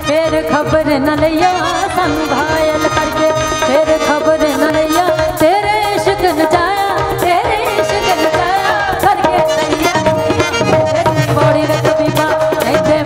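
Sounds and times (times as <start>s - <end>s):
tabla: 0.0s - 13.0s
women singing: 0.1s - 13.0s.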